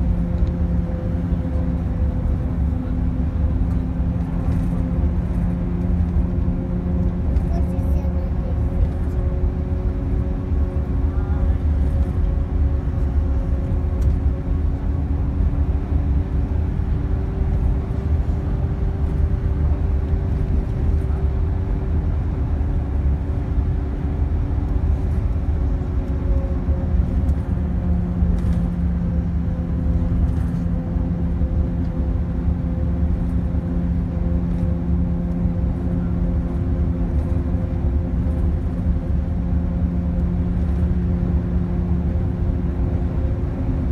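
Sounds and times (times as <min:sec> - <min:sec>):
car engine drone: 0:00.0 - 0:43.9
road noise: 0:00.0 - 0:43.9.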